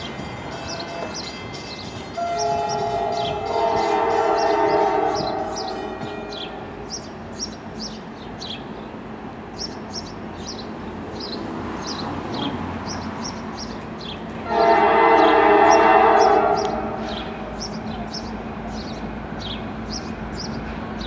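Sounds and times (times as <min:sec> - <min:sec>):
birds chirping: 0:00.0 - 0:21.0
diesel locomotive rumble: 0:00.0 - 0:21.0
train air horn blast: 0:02.2 - 0:06.9, 0:14.4 - 0:17.6.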